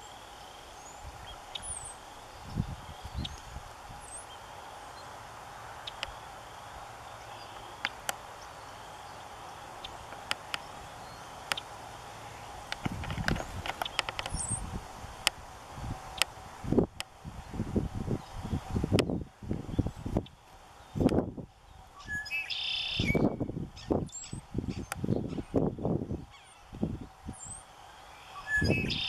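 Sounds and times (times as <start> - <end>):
small bird chirping: 0.8 - 5.1, 13.2 - 14.7, 21.7 - 25.6, 26.2 - 29.0
sharp clicks and ticks: 12.7 - 14.4.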